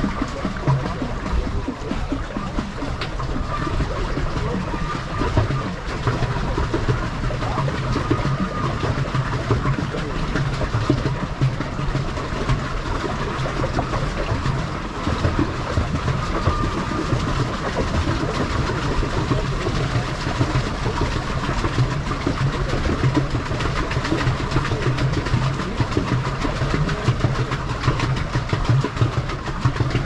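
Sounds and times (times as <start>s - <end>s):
low hum: 0.0s - 30.0s
paddle wheel churning water: 0.0s - 30.0s.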